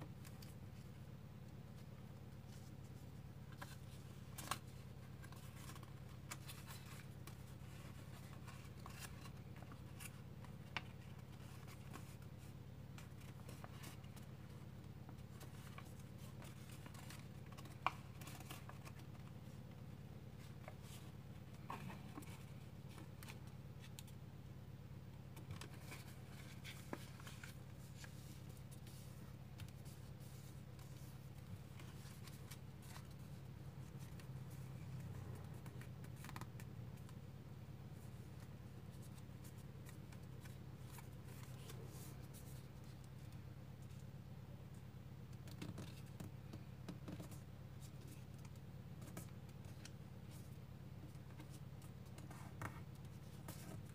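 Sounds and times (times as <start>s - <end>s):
faint low hum: 0.0s - 53.9s
paper rustling and crinkling: 1.7s - 19.6s, 20.3s - 24.1s, 25.3s - 37.2s, 38.0s - 44.1s.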